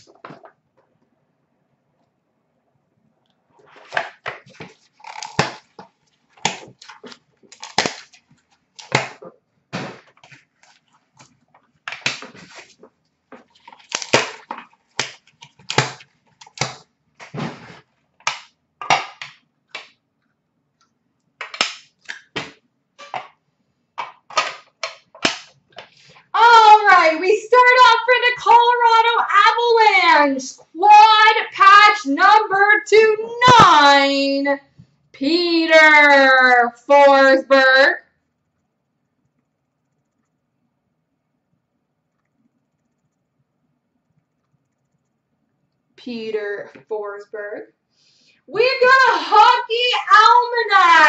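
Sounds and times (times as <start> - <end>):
plastic cases clicking and snapping: 13.4 - 17.4, 21.4 - 23.4
person speaking: 26.3 - 34.6, 48.5 - 51.0.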